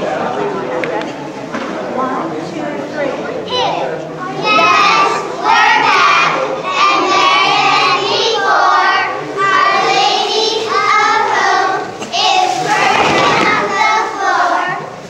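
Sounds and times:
girls chanting a cheer: 4.3 - 15.0.

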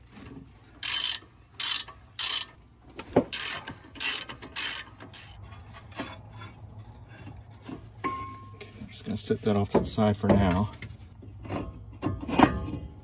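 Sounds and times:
ratchet clicking: 0.8 - 2.6, 3.3 - 5.4.

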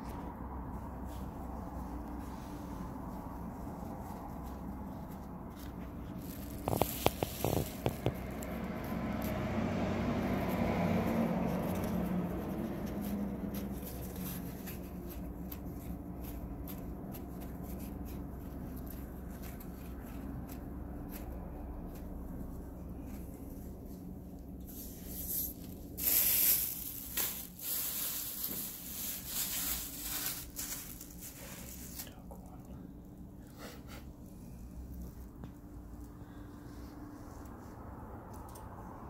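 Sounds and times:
paper towel rubbing on tiles: 24.7 - 32.1.

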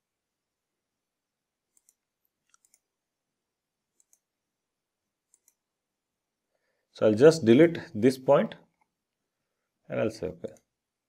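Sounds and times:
computer mouse clicks: 1.7 - 2.9, 3.9 - 4.3, 5.3 - 5.7.

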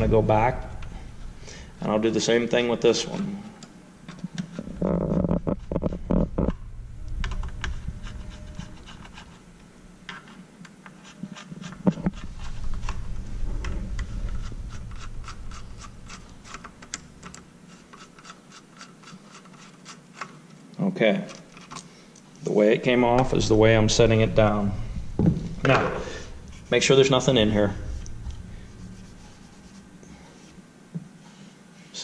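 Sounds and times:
screwdriver ticks and scrapes: 13.6 - 20.4.

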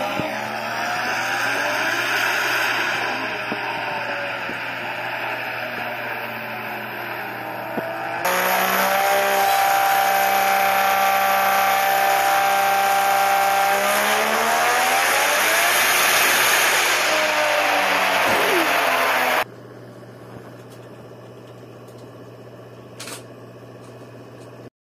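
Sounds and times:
car engine revving: 0.0 - 19.5.

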